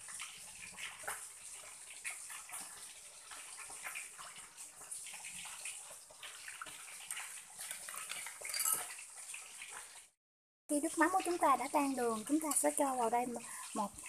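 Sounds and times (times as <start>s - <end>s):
spoon clinking: 8.4s - 8.9s.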